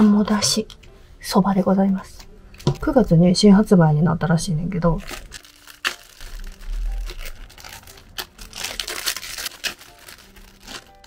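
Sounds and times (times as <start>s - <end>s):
plastic packaging crinkling: 4.8s - 11.0s.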